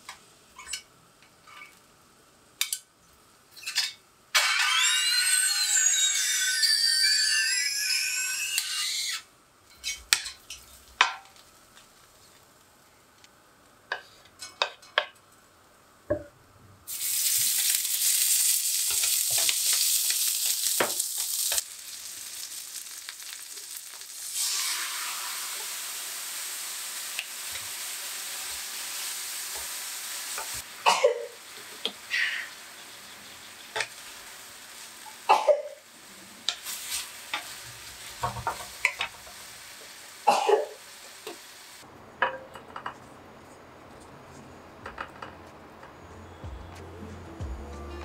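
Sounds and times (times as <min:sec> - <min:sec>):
food squeaking in a pan: 0:04.4 - 0:09.3
oil sizzling in a hot pan: 0:16.9 - 0:41.9.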